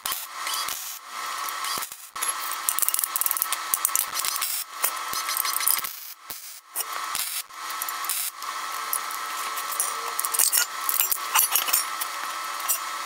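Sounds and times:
welding arc crackling hiss: 0:00.0 - 0:13.0.

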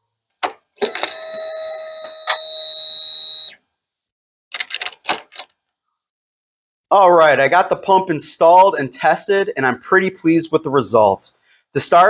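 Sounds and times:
fuel pump buzzing whine: 0:00.8 - 0:03.6.

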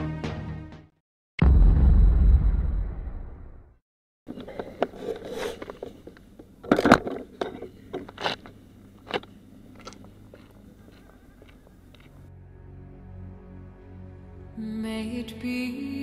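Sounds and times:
camera handling clicks and scrapes: 0:04.3 - 0:10.0.

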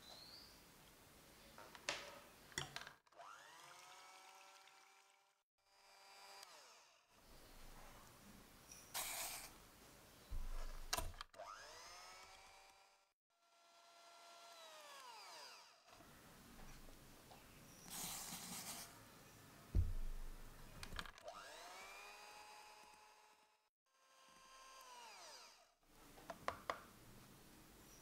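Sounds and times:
electric hand mixer whining: 0:03.2 - 0:05.2, 0:21.2 - 0:23.2
loud low thump: 0:19.8 - 0:20.5.

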